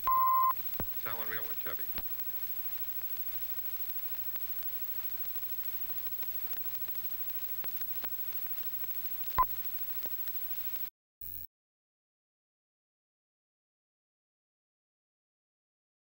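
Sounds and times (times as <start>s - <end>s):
film soundtrack hiss and crackle: 0.0s - 10.9s
small clicks: 1.8s - 10.9s.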